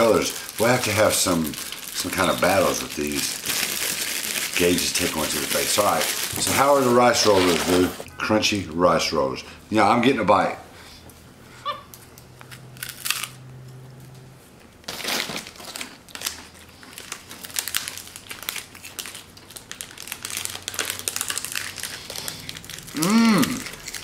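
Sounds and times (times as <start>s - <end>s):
plastic wrapper crinkling: 0.0s - 8.0s, 14.8s - 24.0s
person's voice: 4.6s - 10.6s
crunchy snack being chewed: 12.4s - 13.4s, 15.6s - 24.0s.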